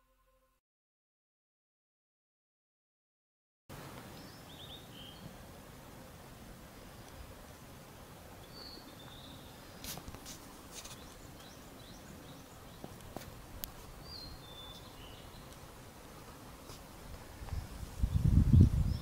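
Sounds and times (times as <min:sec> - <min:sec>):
faint outdoor ambience: 0:03.7 - 0:19.0
small bird chirping: 0:08.4 - 0:09.9, 0:14.0 - 0:15.6.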